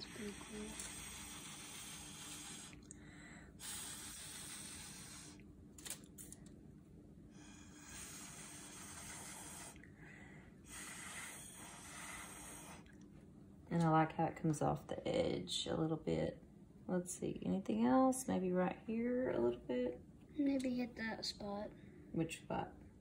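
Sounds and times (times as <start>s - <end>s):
blowing through a drinking straw: 0.0s - 2.9s, 3.6s - 5.4s, 7.4s - 9.8s, 10.7s - 12.9s.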